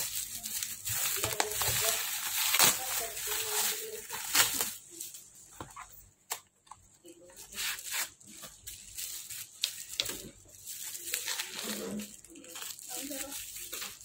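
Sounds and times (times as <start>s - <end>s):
packaging rustling and crinkling: 0.0s - 14.0s.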